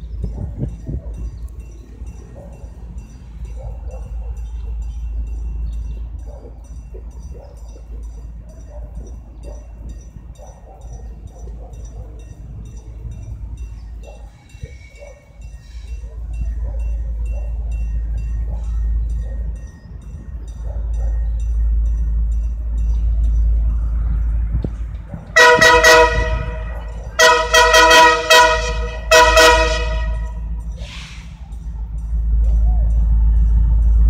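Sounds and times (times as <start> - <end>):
low train rumble: 0.0 - 34.0
locomotive air horn blasts: 25.3 - 31.4.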